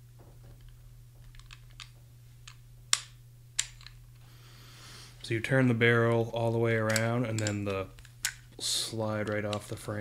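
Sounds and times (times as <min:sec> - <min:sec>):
pistol metallic clicks: 0:02.5 - 0:04.0, 0:06.8 - 0:08.4.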